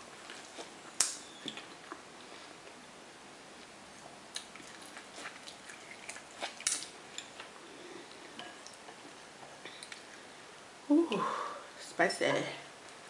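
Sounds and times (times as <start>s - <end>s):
chewing corn on the cob: 4.3s - 7.5s
wet clicks and crackles: 4.4s - 7.5s.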